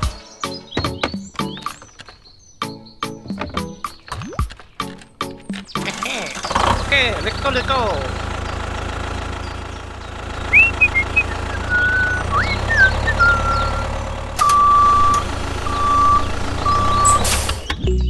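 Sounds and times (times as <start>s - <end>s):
chirping whistles: 0.0s - 4.1s, 10.4s - 17.9s
tractor engine humming: 0.0s - 17.8s
long even beeps: 13.2s - 17.3s.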